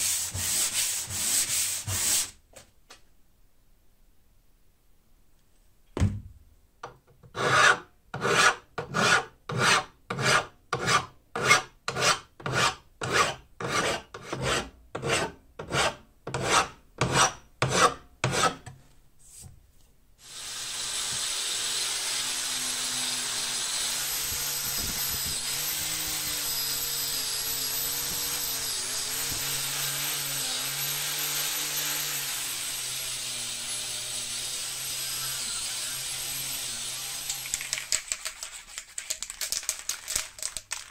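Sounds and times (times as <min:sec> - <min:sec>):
hand file scraping steel: 0:00.0 - 0:02.4, 0:07.2 - 0:18.6
angle grinder on steel: 0:20.2 - 0:37.6.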